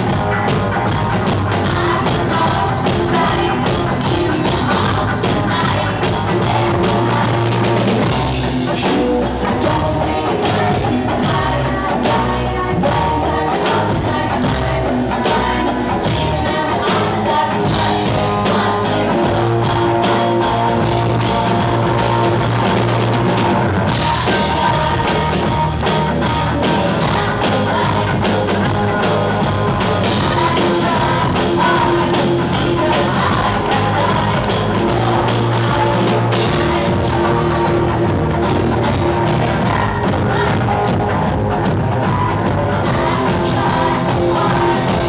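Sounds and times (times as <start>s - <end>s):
drum kit: 0.0s - 45.0s
electric guitar: 0.0s - 45.0s
keyboard: 0.0s - 45.0s
woman singing: 0.5s - 22.9s, 23.9s - 41.1s
man singing: 1.5s - 7.8s.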